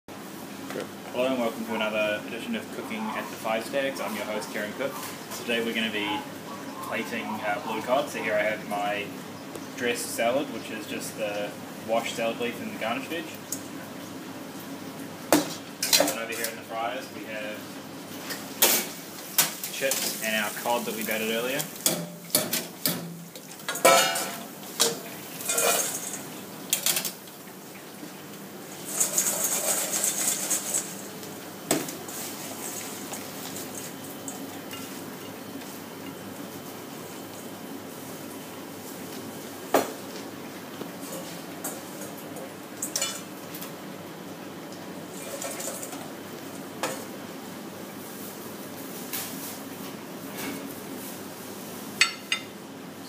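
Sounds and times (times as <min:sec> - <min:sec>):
steady background hum: 0:00.1 - 0:53.0
fryer baskets clanking: 0:15.3 - 0:27.8, 0:28.6 - 0:37.4, 0:41.0 - 0:43.8, 0:45.1 - 0:47.2
steel bowl clanking and rattling: 0:23.7 - 0:26.2, 0:28.8 - 0:31.0.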